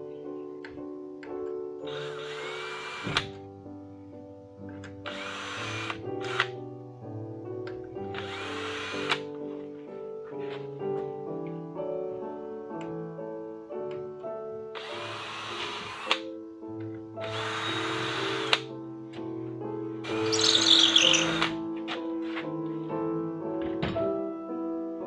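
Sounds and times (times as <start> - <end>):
classical background music: 0.0 - 25.0
drill boring into metal: 1.9 - 3.3, 5.1 - 6.5, 8.2 - 9.2, 14.8 - 16.2, 17.2 - 18.6, 20.2 - 21.5.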